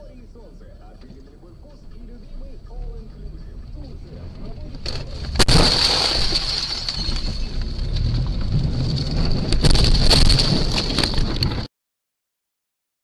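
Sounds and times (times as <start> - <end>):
loud continuous rumbling: 0.0 - 11.7
car collision bang: 4.8 - 11.4.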